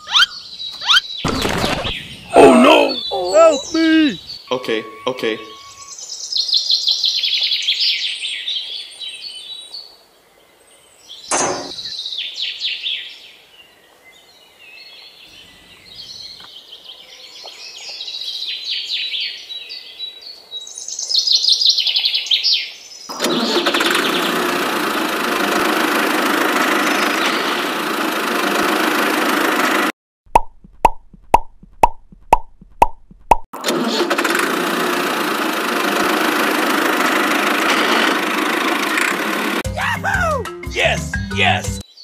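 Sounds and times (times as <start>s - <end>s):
birds chirping and singing: 0.0s - 23.1s
sharp knock: 11.3s - 11.9s.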